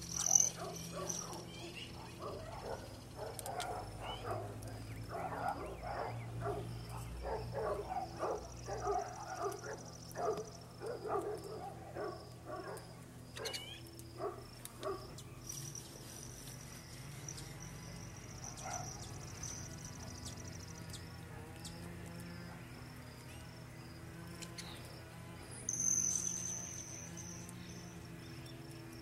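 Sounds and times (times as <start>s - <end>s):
high insect-like trill: 0.0s - 29.0s
rising chirp: 25.7s - 27.8s.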